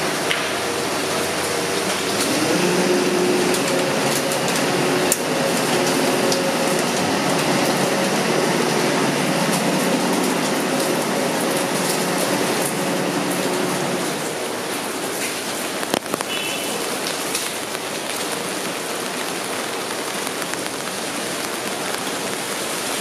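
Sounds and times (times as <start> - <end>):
machine hum: 0.0 - 14.8
steady rain hiss: 0.0 - 23.0.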